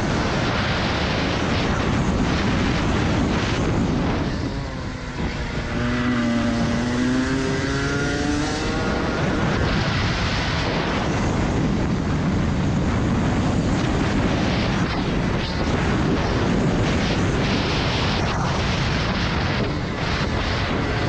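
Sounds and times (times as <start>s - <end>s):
wind rush on microphone: 0.0s - 21.0s
kart engine accelerating: 2.7s - 11.5s.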